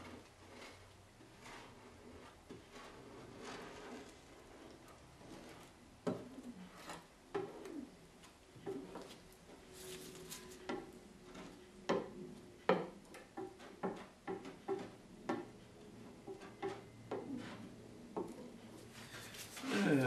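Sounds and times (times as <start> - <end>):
putty knife scraping: 0.0 - 7.8.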